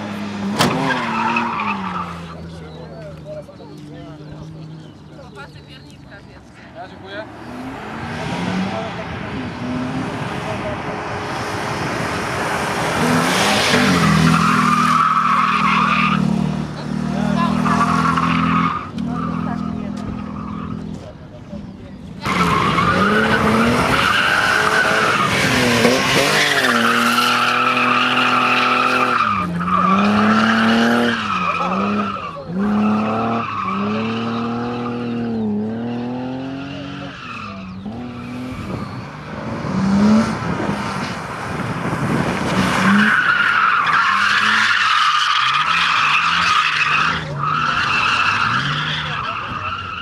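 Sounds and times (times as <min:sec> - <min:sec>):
car engine revving: 0:07.0 - 0:50.0
tyres squealing: 0:42.8 - 0:50.0.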